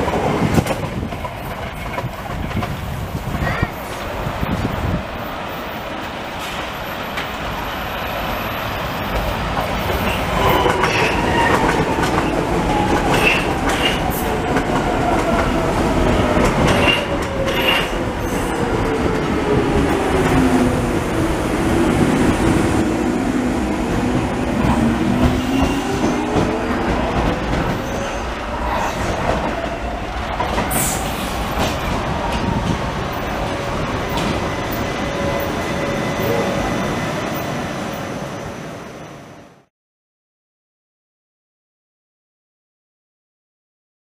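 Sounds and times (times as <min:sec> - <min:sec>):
metro train rumbling past: 0:00.0 - 0:39.7
train whine: 0:00.0 - 0:39.7
wheels clacking over rail joints: 0:09.1 - 0:18.1.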